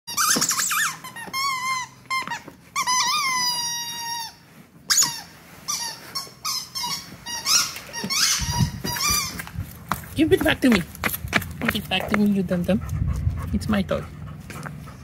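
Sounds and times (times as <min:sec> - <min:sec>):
squeaky dog toy squeaking: 0:00.1 - 0:09.5.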